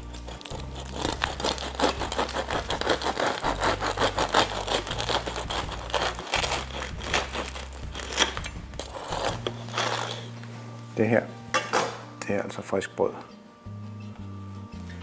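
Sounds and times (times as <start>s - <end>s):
knife sawing crunchy bread crust: 0.0s - 10.3s.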